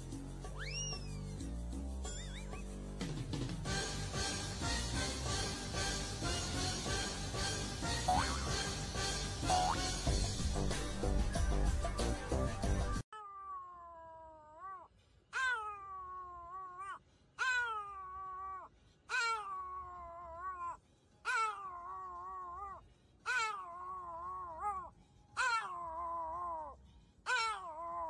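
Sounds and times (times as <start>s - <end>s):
dog howling: 13.2s - 28.0s.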